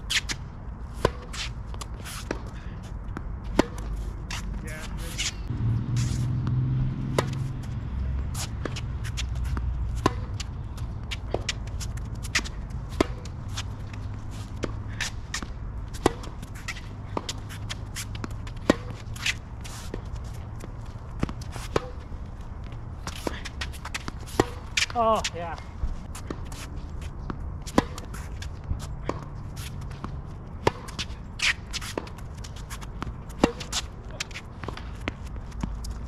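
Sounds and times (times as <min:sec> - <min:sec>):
tennis racquets striking ball: 0:01.0 - 0:02.5, 0:03.4 - 0:04.5, 0:05.1 - 0:22.0, 0:23.0 - 0:25.3, 0:26.2 - 0:36.0
steady low rumble: 0:02.6 - 0:23.5
ball bouncing on court: 0:06.4 - 0:07.8, 0:08.5 - 0:10.5.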